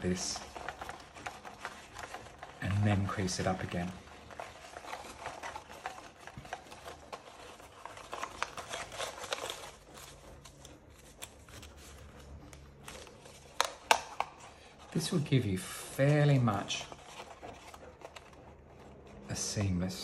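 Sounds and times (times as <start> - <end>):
paper crackling and rustling: 0.0 - 20.0.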